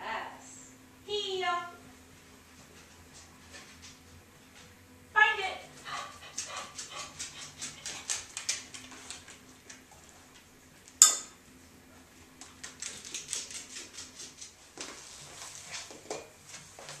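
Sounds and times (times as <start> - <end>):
dog's nails clicking on hardwood floor: 5.9 - 9.8, 12.4 - 15.0
sharp metal clink: 11.0 - 11.4.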